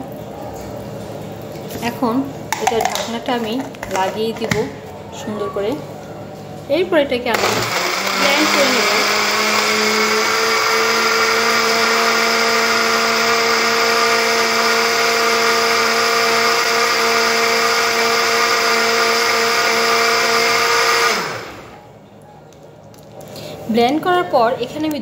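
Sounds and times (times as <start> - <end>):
blender motor whining: 7.3 - 21.8.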